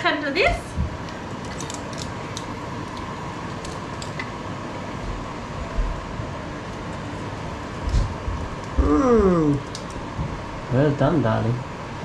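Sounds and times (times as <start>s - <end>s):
fan-like hum: 0.0s - 12.0s.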